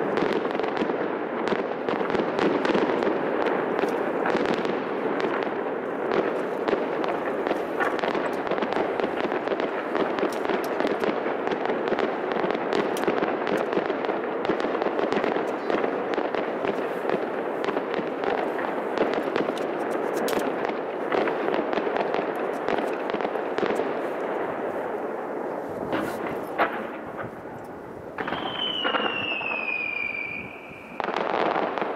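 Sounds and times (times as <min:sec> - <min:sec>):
fireworks crackling: 0:00.0 - 0:31.9
firework bang: 0:28.2 - 0:31.9.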